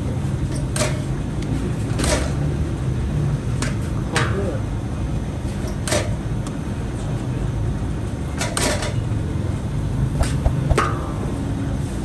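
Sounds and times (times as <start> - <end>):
steady low hum: 10.2 - 11.1.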